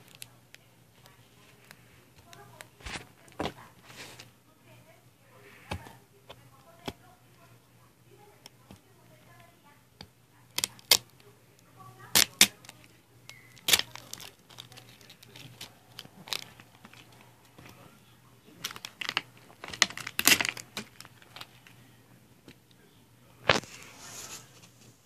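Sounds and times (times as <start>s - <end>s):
plastic bottle clicking and crinkling: 12.1s - 17.8s, 18.6s - 21.7s.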